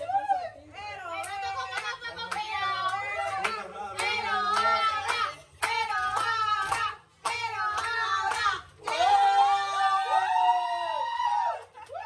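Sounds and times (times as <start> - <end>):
hands clapping along: 1.2 - 9.2.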